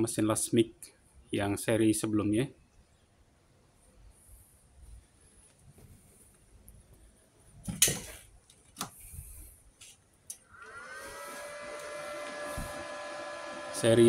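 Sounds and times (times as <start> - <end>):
cooling fan whirring: 10.4 - 14.0.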